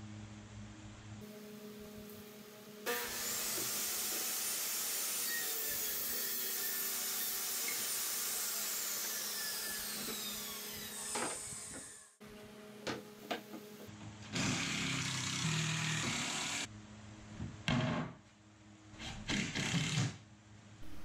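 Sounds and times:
power saw cutting wood: 0:02.9 - 0:12.1, 0:14.4 - 0:16.7.

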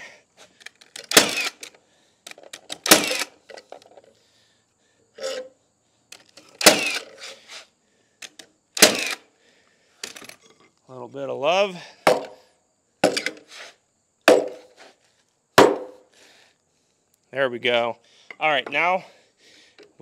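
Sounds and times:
tool clicks and rattles: 0:00.6 - 0:04.1, 0:06.1 - 0:07.4, 0:08.2 - 0:09.2, 0:10.0 - 0:10.7
nail gun shots into wood: 0:01.0 - 0:01.7, 0:02.5 - 0:03.4, 0:06.6 - 0:07.1, 0:08.3 - 0:09.2, 0:12.1 - 0:12.4, 0:13.0 - 0:13.4, 0:14.3 - 0:14.6, 0:15.6 - 0:16.0.

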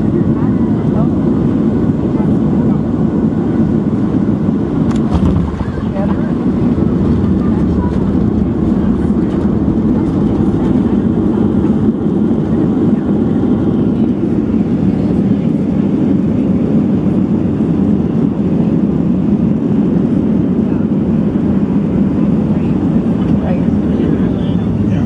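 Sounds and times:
jet engines at low power: 0:00.0 - 0:25.0
rolling airframe rumble: 0:03.1 - 0:17.3, 0:20.8 - 0:25.0.

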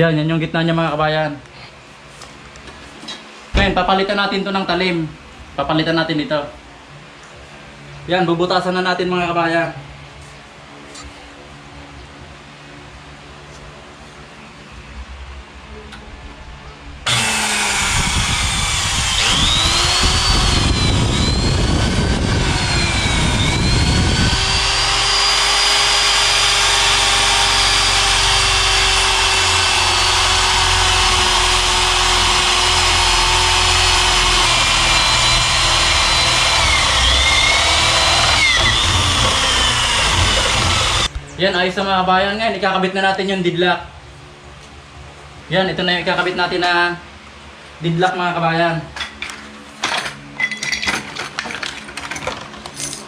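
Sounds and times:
electric drill boring into wood: 0:17.1 - 0:41.1
wood chattering under bit: 0:17.1 - 0:41.1.

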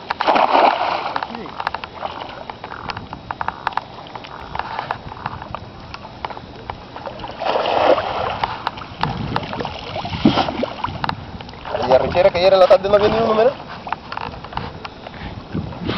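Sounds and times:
cast net splashing onto water: 0:00.0 - 0:02.2, 0:07.3 - 0:10.9
small ticks: 0:01.2 - 0:06.8, 0:13.7 - 0:15.2
water splashing and dripping: 0:06.2 - 0:11.9.

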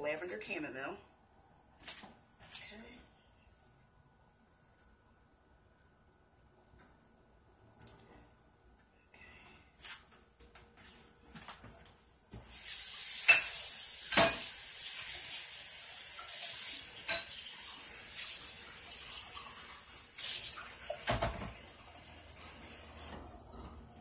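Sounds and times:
running water hissing: 0:12.4 - 0:23.5.

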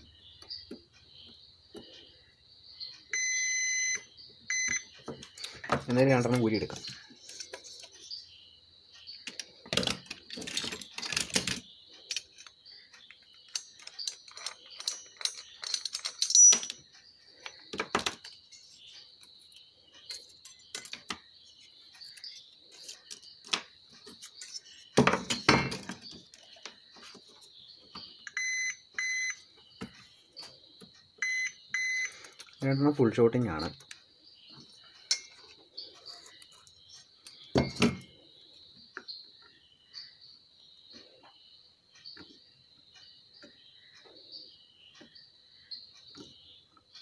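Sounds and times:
multimeter continuity buzzer beeping: 0:03.1 - 0:05.0, 0:28.2 - 0:29.4, 0:31.2 - 0:32.2
knocks and clicks of tools: 0:03.2 - 0:08.0, 0:09.1 - 0:18.4, 0:22.0 - 0:27.3, 0:36.2 - 0:38.2.

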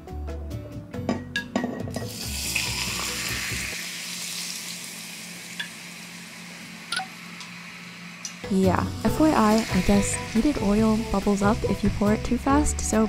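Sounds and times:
hot oil sizzling and bubbling: 0:02.0 - 0:12.7.

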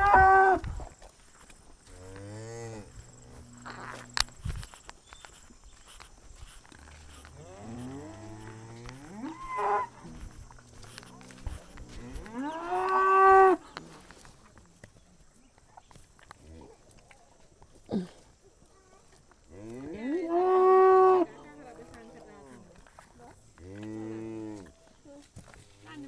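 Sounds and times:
cattle mooing: 0:07.0 - 0:13.6.

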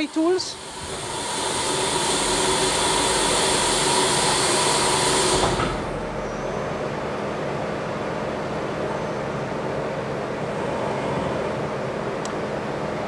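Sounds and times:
high hiss: 0:00.0 - 0:07.0
machine running noise: 0:00.0 - 0:13.0.

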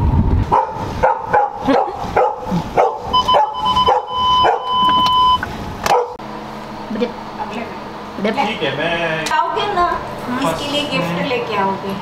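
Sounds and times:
dog barking: 0:00.5 - 0:04.8, 0:05.9 - 0:06.2.

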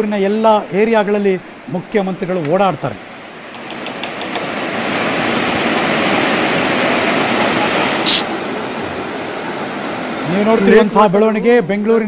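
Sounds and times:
short sharp hiss: 0:08.0 - 0:08.3.

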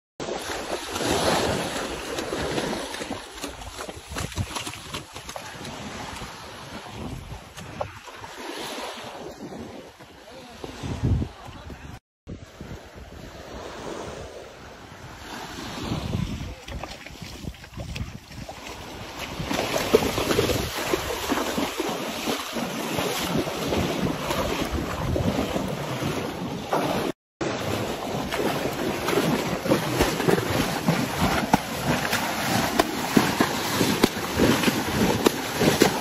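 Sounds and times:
horses wading through water: 0:00.2 - 0:12.0, 0:12.6 - 0:36.0
wind buffeting microphone: 0:10.7 - 0:21.4, 0:23.4 - 0:25.8.

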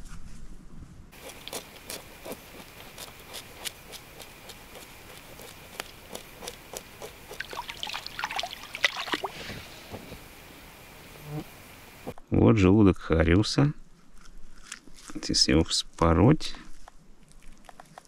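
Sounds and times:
water splashing and trickling: 0:06.8 - 0:09.9.

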